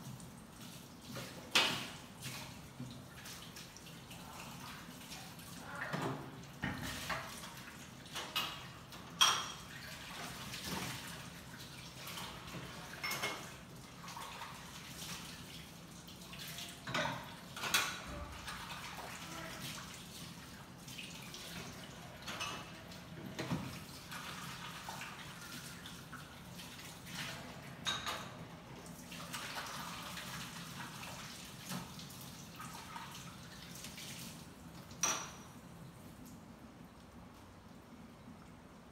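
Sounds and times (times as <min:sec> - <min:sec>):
water running and splashing: 0:00.0 - 0:35.8
dishes clinking: 0:08.2 - 0:09.8, 0:12.6 - 0:13.6, 0:22.2 - 0:23.7, 0:27.8 - 0:28.4, 0:35.0 - 0:35.6.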